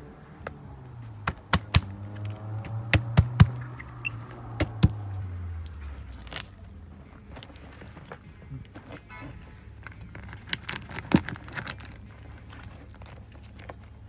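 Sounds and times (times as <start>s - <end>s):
low steady hum: 0.0s - 14.0s
sharp knocks: 1.2s - 1.9s, 2.7s - 3.6s.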